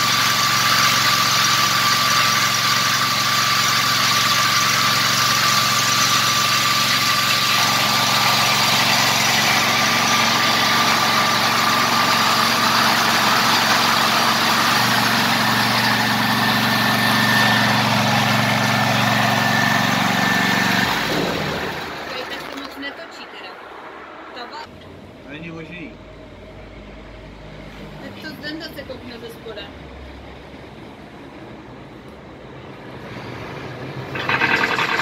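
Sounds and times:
mower engine running: 0.0s - 22.5s, 34.0s - 35.0s.

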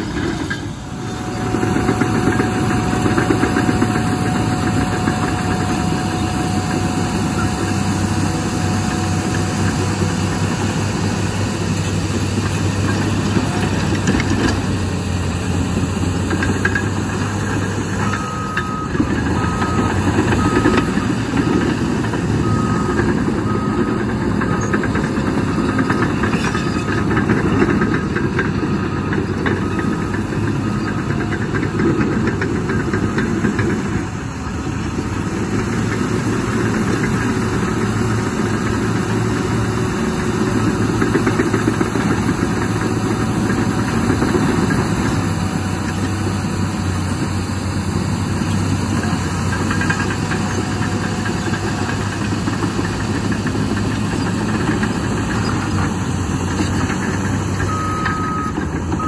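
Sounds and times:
bulldozer diesel engines running: 0.0s - 59.0s
reversing alarm beeping: 0.2s - 10.6s, 17.9s - 33.7s, 57.6s - 59.0s.

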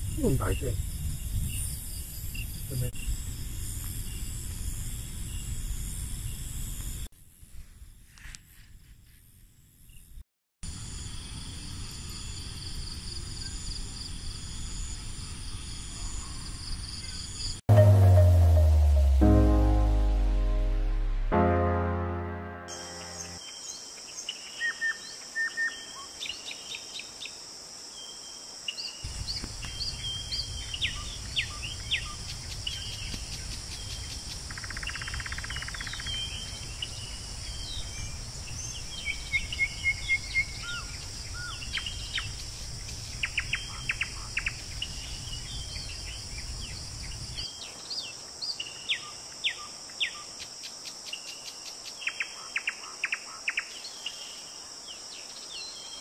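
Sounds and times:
insects droning: 27.3s - 56.0s.

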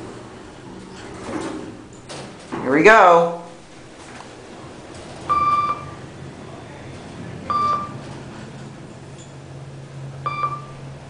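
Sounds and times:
low hum of moving elevator: 0.0s - 11.0s
elevator chime beeping: 5.2s - 6.1s, 7.4s - 8.1s, 10.2s - 11.0s.

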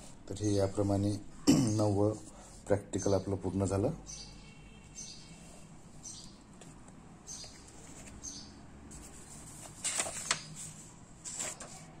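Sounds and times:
book page turning: 7.5s - 8.2s, 8.9s - 12.0s.

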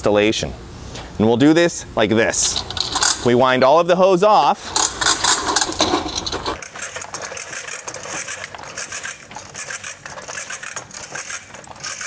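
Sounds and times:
hose reel clicking and scraping: 2.4s - 3.3s, 4.6s - 12.0s.

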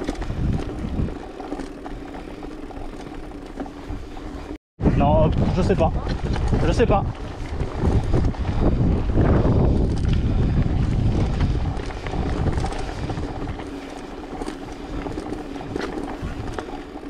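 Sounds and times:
wind buffeting microphone: 0.0s - 2.5s, 4.8s - 17.0s
bike frame rattling: 0.0s - 17.0s
tyres crunching on gravel: 5.4s - 17.0s.

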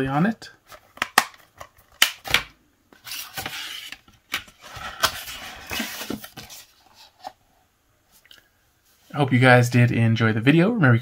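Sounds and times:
plastic scraping against cardboard: 2.9s - 7.4s.

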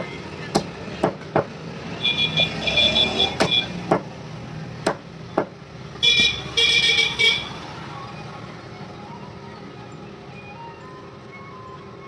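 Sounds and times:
high-pitched vehicle horn honking: 2.0s - 3.8s, 6.0s - 7.6s
sharp knocks: 3.4s - 4.1s.

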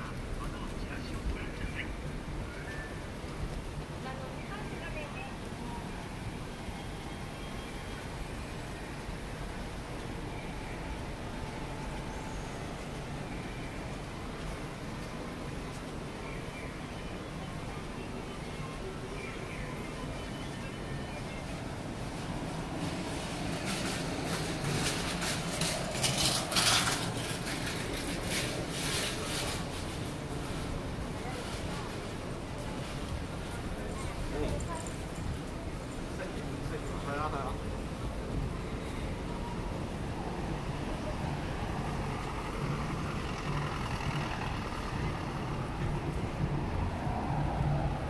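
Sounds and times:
people passing: 0.0s - 48.0s
road traffic noise: 0.0s - 48.0s.

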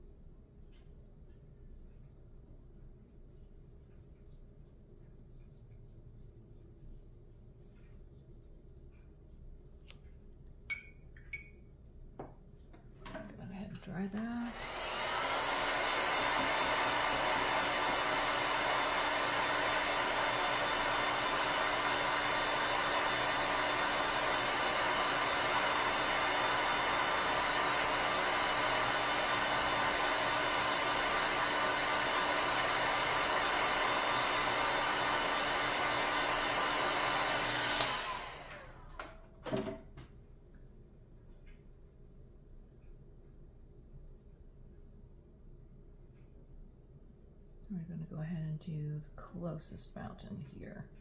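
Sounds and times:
handheld dryer blowing: 14.0s - 39.7s.

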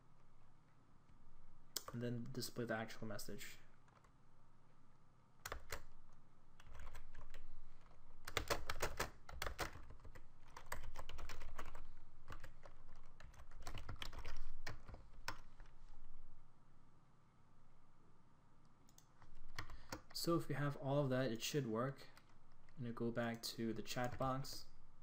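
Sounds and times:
keyboard typing: 5.4s - 6.0s, 6.6s - 15.7s, 18.9s - 20.2s, 24.0s - 24.6s.

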